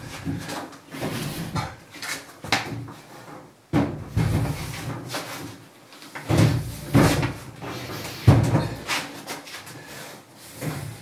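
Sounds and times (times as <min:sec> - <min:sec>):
washing machine bumping and scraping: 0:03.7 - 0:05.2, 0:06.2 - 0:08.9.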